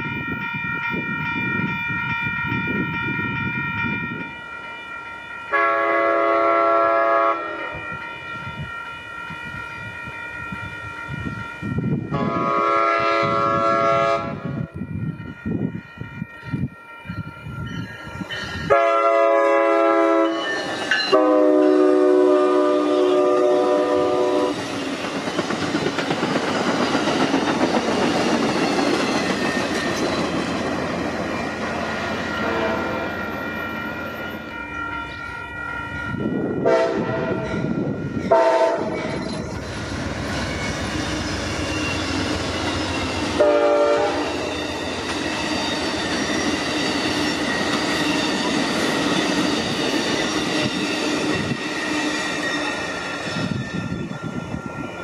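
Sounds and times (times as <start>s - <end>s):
train cars rushing past: 0.0s - 55.0s
train horn blasts: 3.1s - 15.0s, 18.6s - 20.5s, 21.1s - 24.6s, 32.3s - 33.2s, 34.5s - 39.2s, 43.2s - 44.6s
wheels clattering on rail: 24.5s - 34.4s, 44.2s - 54.2s.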